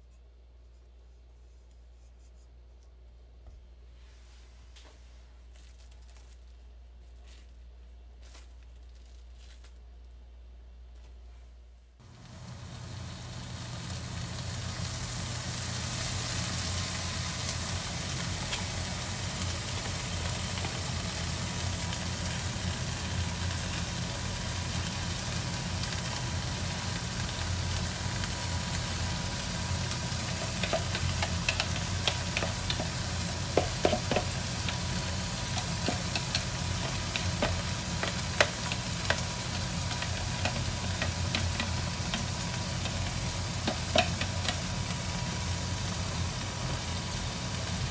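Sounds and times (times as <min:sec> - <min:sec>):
meat sizzling in a frying pan: 0:12.1 - 0:47.9.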